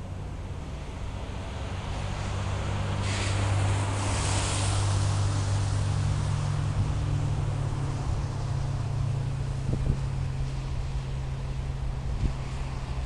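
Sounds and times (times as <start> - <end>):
diesel locomotive drone: 0.0 - 13.0
wind on microphone: 3.1 - 13.0.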